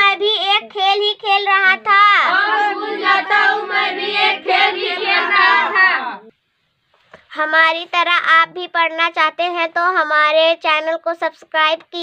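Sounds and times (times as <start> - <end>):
girl chanting a poem: 0.0 - 6.3.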